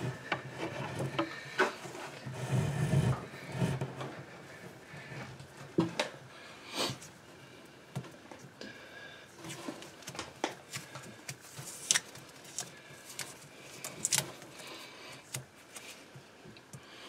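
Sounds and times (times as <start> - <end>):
cable scraping against wood: 0.0 - 5.3.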